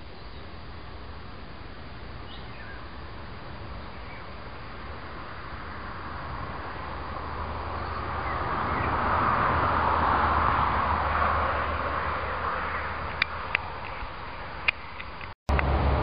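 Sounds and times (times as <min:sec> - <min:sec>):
vehicle passing by: 0:03.0 - 0:14.6, 0:15.5 - 0:16.0.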